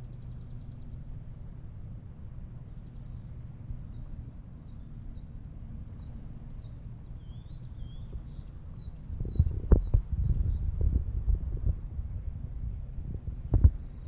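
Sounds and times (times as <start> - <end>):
steady low rumble: 0.0 - 14.0
bird chirping faintly: 2.6 - 11.6.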